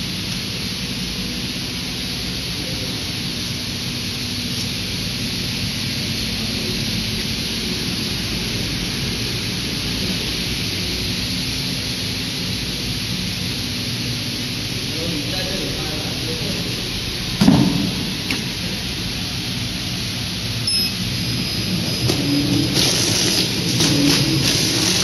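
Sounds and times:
packaging machine hiss: 21.7s - 25.0s.

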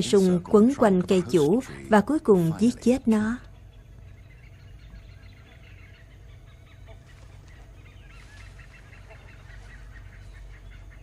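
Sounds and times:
birds chirping: 0.0s - 11.0s
low honking bird calls: 2.7s - 11.0s.

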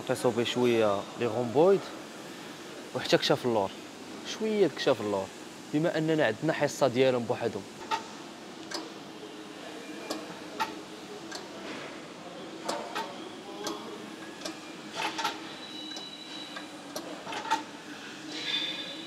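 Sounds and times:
row machine clicks and clanks: 12.6s - 19.0s.

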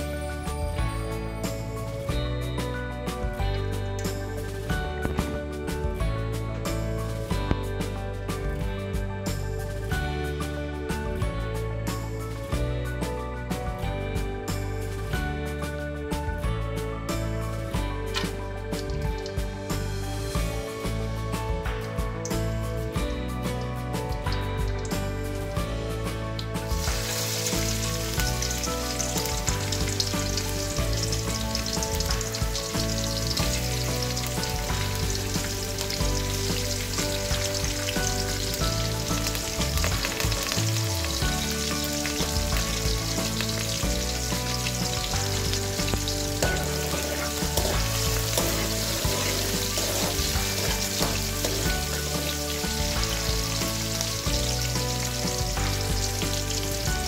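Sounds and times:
garlic sizzling in hot fat: 22.2s - 57.0s.

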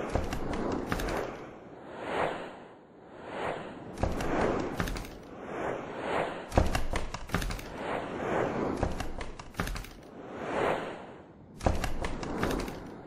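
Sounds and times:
quick runs of clicks: 0.0s - 1.4s, 4.0s - 5.3s, 6.5s - 7.8s, 8.8s - 10.1s, 11.6s - 13.0s
whooshes: 0.0s - 13.0s
sharp thuds: 6.5s - 7.8s, 11.6s - 12.9s.

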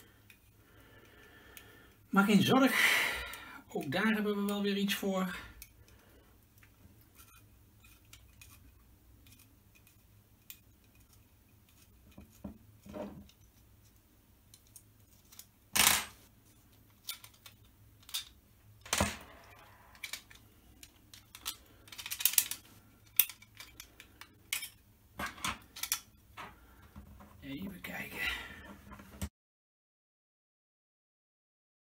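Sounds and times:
metal handling clicks: 17.0s - 24.8s, 25.5s - 26.1s.

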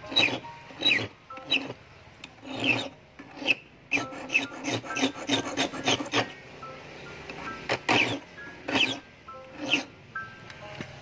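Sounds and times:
hand file rasping on steel wire: 0.0s - 1.8s, 2.4s - 6.3s, 7.8s - 9.0s, 9.6s - 9.9s.

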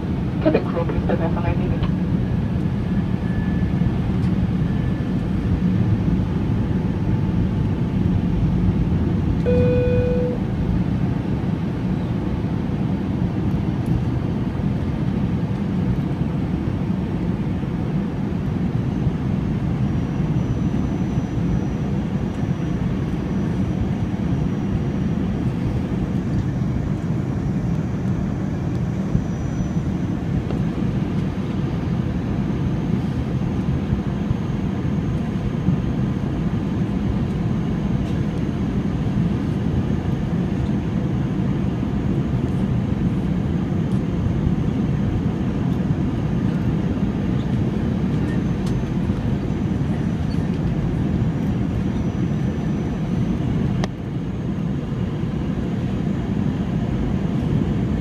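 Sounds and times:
airplane cabin rumble: 0.0s - 58.0s
brief tone: 9.4s - 10.5s.

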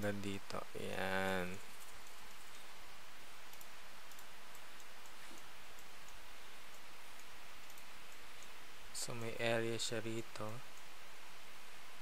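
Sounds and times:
microphone hiss: 0.0s - 12.0s
computer mouse clicks: 1.5s - 2.7s, 3.5s - 8.6s.

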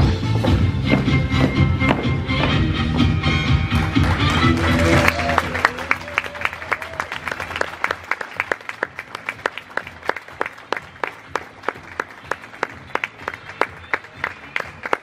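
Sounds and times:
square dance music: 0.0s - 15.0s
small audience applauding: 3.8s - 15.0s.

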